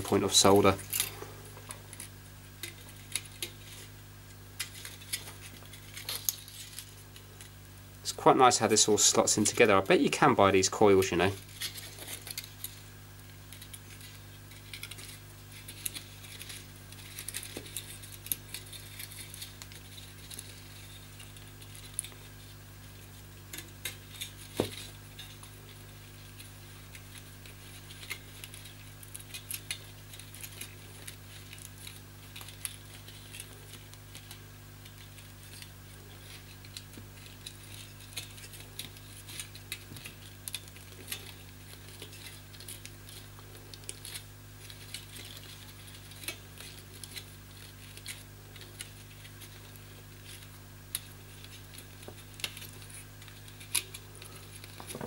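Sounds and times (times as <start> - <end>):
small metallic clicks and scratches: 0.0 - 7.6, 11.1 - 55.0
steady low hum: 0.0 - 55.0.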